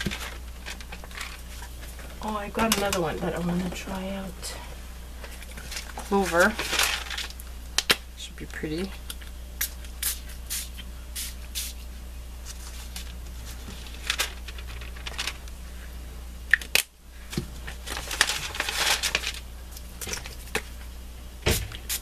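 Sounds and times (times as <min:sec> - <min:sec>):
paper rustling: 0:00.0 - 0:02.0, 0:05.3 - 0:07.4, 0:12.4 - 0:15.5, 0:17.3 - 0:19.4.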